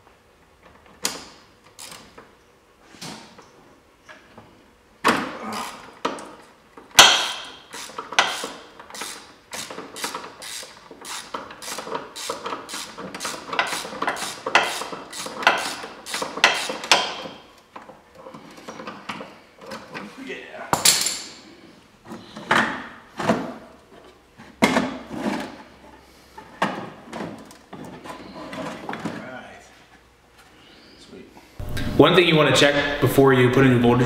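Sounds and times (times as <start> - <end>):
hand ratchet clicking: 1.7 - 2.1, 7.0 - 17.2.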